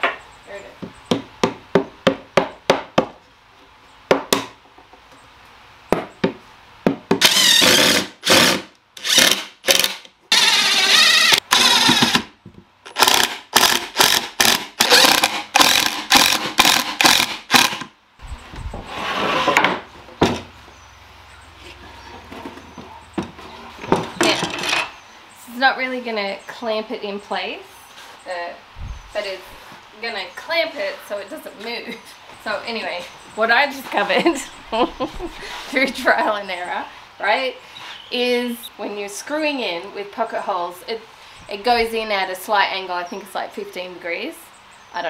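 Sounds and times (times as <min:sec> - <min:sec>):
impact driver driving screws: 0:07.2 - 0:12.3, 0:12.9 - 0:17.9.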